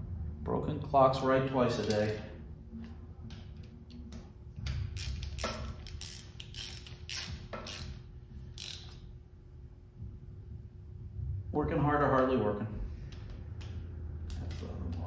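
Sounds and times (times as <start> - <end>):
socket ratchet clicking: 1.8 - 2.3, 3.6 - 9.1.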